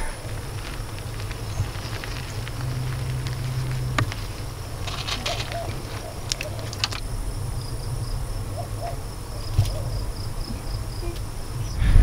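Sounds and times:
pulsing insect trill: 0.0 - 11.9
low rumble: 10.0 - 12.0.

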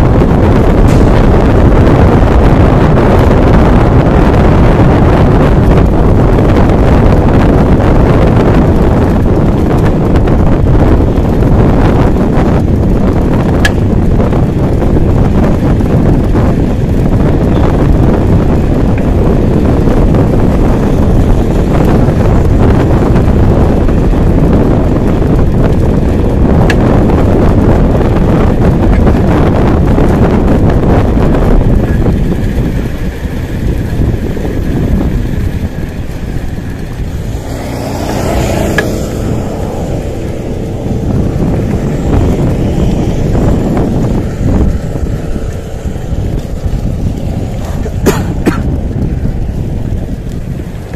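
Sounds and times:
road noise: 0.0 - 50.9
wind buffeting microphone: 0.0 - 50.9.

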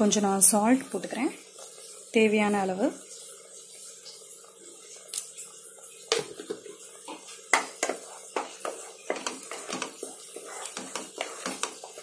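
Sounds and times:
spoon scraping pan: 6.1 - 12.0.

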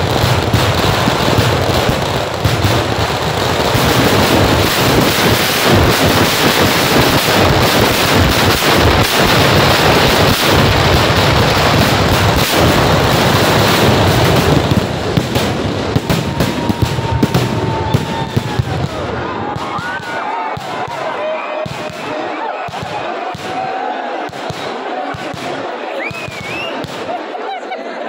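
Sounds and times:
fireworks barrage: 0.0 - 27.6
faint firework whistle: 26.0 - 26.8.

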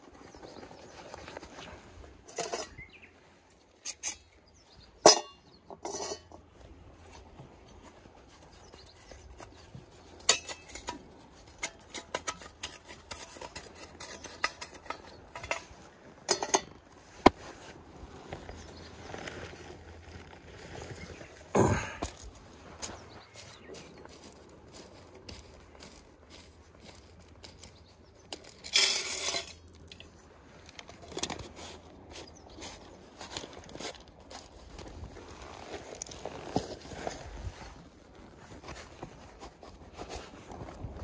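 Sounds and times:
metal stove parts clinking: 2.3 - 2.9, 5.0 - 6.4, 10.2 - 16.8.

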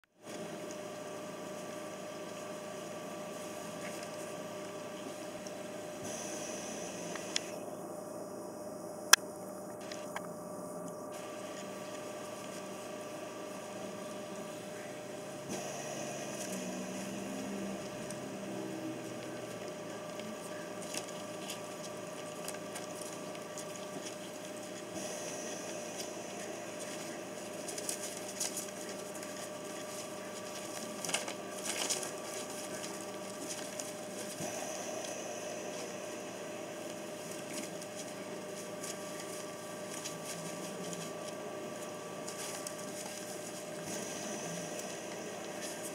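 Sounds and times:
electrical hum: 0.0 - 45.9
newspaper crinkling and rustling: 26.8 - 34.4, 37.3 - 44.0.

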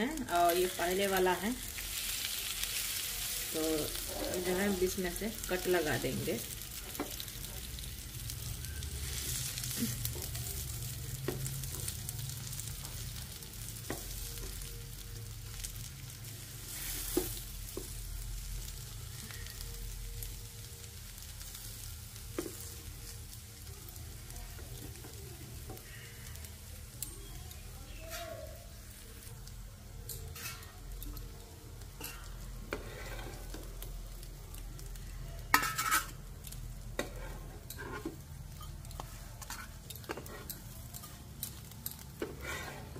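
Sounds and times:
omelettes sizzling in oil: 0.0 - 42.9
spatula clattering: 30.0 - 30.8, 32.0 - 33.6, 35.5 - 36.2
metal spatula scraping pan: 30.3 - 30.8, 32.0 - 33.6, 35.5 - 36.2, 37.0 - 41.2, 42.2 - 42.9.

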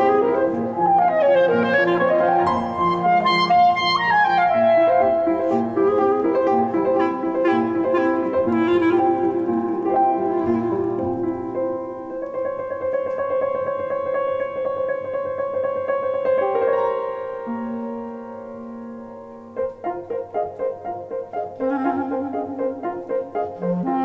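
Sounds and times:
clarinet playing: 0.0 - 12.2, 21.4 - 24.0
grand piano chords: 0.0 - 24.0.

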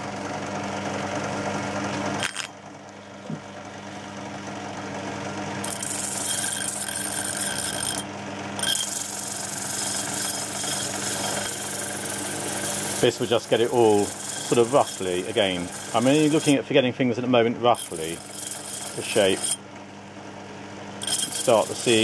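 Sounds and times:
motor hum: 0.0 - 22.0
sanding drum grinding steel: 5.6 - 16.6, 17.7 - 19.6, 21.0 - 22.0.

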